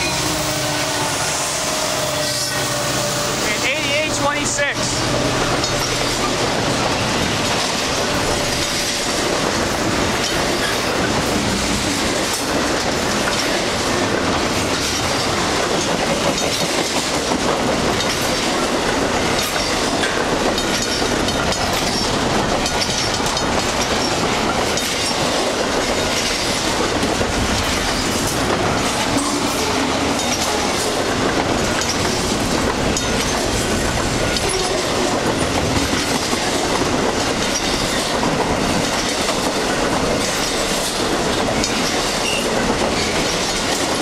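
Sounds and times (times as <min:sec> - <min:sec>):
steel wheels rumbling on rail: 0:00.0 - 0:44.0
wheels clacking over rail joints: 0:00.0 - 0:44.0.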